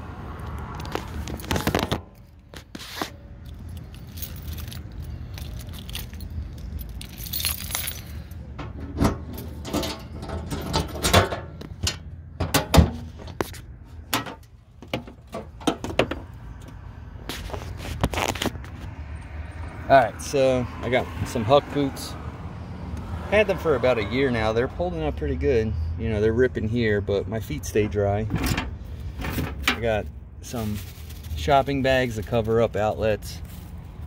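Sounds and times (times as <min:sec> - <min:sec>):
light metallic jangling: 0:03.4 - 0:11.5.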